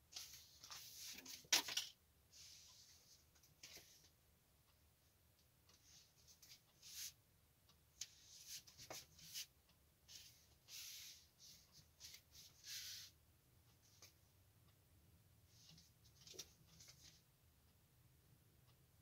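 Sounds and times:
soft swishes and rubs: 0:00.1 - 0:01.4, 0:10.1 - 0:13.2.

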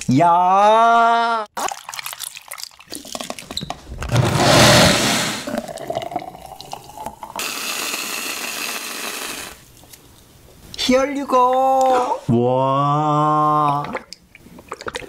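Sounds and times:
blender rushing: 0:04.1 - 0:05.5, 0:07.4 - 0:09.6
whipped cream can hissing: 0:07.4 - 0:09.6.

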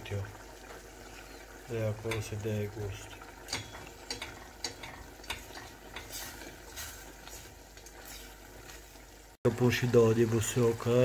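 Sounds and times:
sauce bubbling: 0:00.0 - 0:11.0
tongs scraping a pot: 0:03.4 - 0:08.4.

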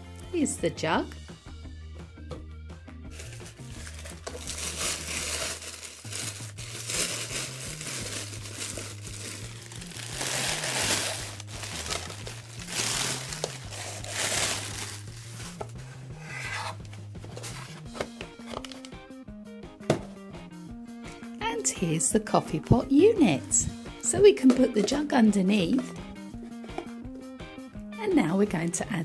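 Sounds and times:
background music with bass: 0:00.0 - 0:21.5, 0:22.1 - 0:29.0
tissue paper crinkling: 0:03.1 - 0:15.6.

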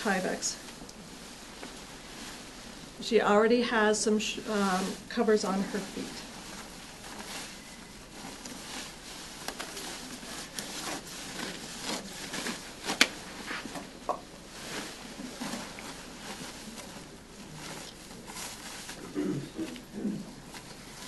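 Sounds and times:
coverall fabric rustling: 0:00.0 - 0:21.0
small clicks and rubs: 0:08.2 - 0:17.0.

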